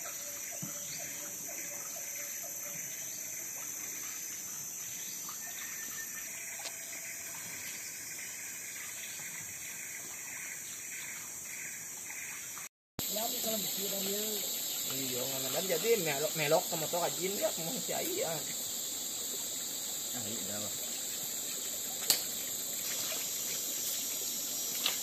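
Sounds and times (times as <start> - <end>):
high-pitched insect drone: 0.0 - 25.0
trickling water: 0.0 - 25.0.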